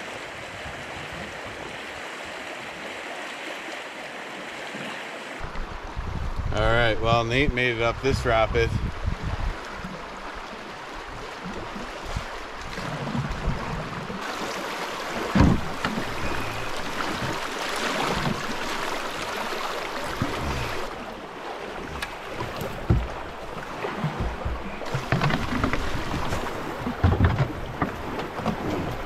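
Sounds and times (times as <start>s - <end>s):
rushing river water: 0.0s - 29.0s
paddle thumping on boat: 12.1s - 21.0s, 21.8s - 29.0s.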